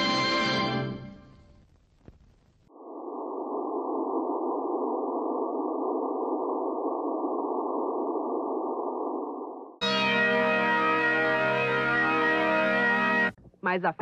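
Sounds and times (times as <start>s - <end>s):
muffled background drone: 1.5s - 14.0s
logo music: 9.8s - 13.4s.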